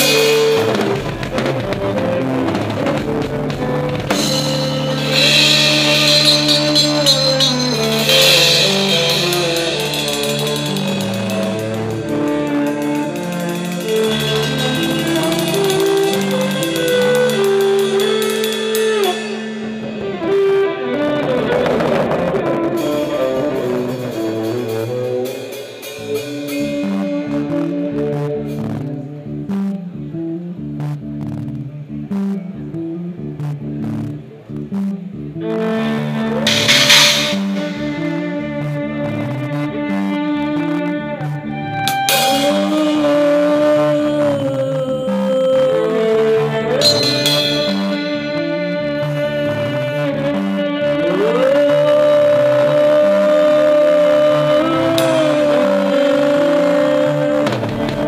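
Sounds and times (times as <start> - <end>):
live rock band: 0.0 - 29.5, 35.6 - 58.0
cymbal crashes: 4.1 - 20.6, 36.5 - 38.8, 42.1 - 43.2, 46.8 - 49.2.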